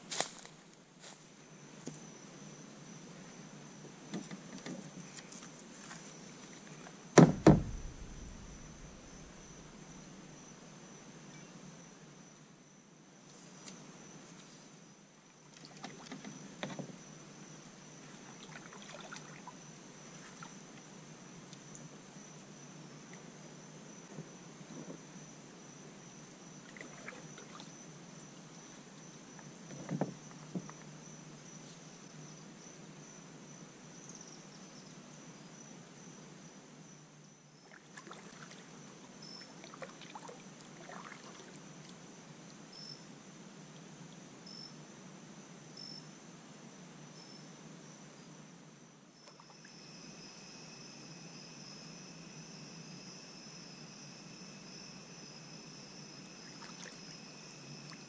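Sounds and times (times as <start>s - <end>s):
high-pitched insect trill: 5.0s - 15.1s, 16.0s - 43.2s, 44.4s - 46.2s, 47.1s - 58.0s
kayak paddle splashes: 37.7s - 38.7s, 39.5s - 41.6s.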